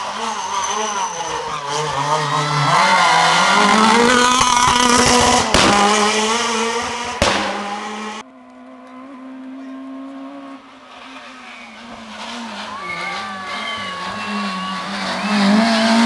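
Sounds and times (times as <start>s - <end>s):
distant car engine: 0.0s - 16.0s
rally car engine at high revs: 0.0s - 16.0s
sharp cracks: 7.2s - 7.8s.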